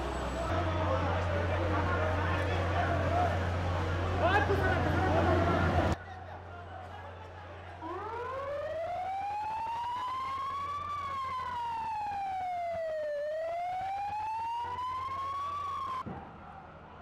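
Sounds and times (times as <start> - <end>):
emergency siren wailing: 7.8 - 16.1.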